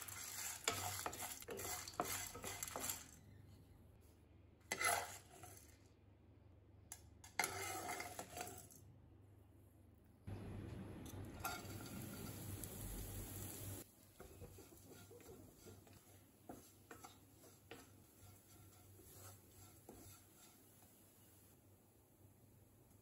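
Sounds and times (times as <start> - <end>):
oil frying in a pan: 0.0 - 3.2, 11.1 - 23.0
spatula scraping and tapping a pan: 0.0 - 3.2, 4.6 - 5.8, 6.9 - 8.8, 11.4 - 12.4, 14.1 - 21.4.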